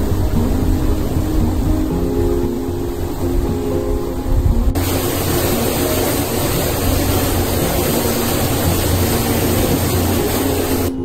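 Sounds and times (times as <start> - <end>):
water gushing into bath: 4.8 - 11.0.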